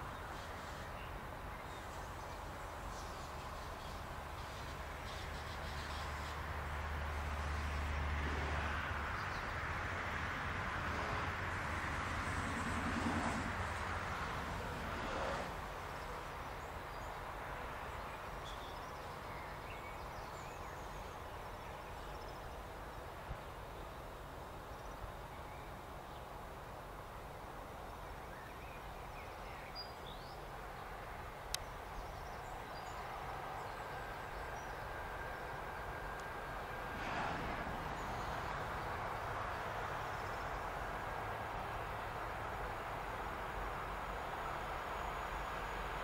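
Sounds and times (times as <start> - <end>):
distant electric train: 30.5 - 46.0.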